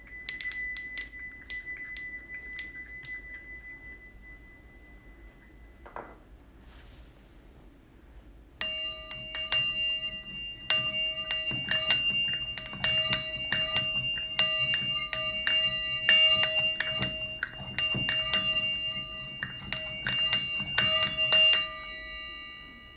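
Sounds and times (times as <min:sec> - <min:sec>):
brass bell ringing: 0:08.6 - 0:22.9.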